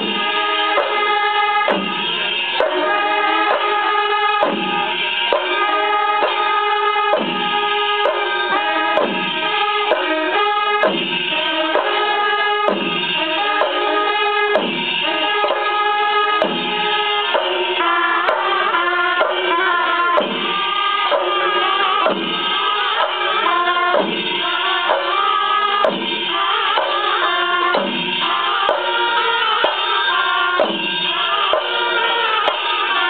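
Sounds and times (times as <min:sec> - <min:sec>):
temple percussion ensemble: 0:00.0 - 0:33.0
deep drum beat: 0:01.6 - 0:02.8, 0:04.4 - 0:05.6, 0:07.1 - 0:09.3, 0:12.6 - 0:13.9, 0:14.5 - 0:15.7, 0:16.4 - 0:17.6, 0:20.1 - 0:21.4, 0:22.0 - 0:23.1, 0:23.9 - 0:24.4, 0:27.7 - 0:28.1, 0:30.6 - 0:31.9.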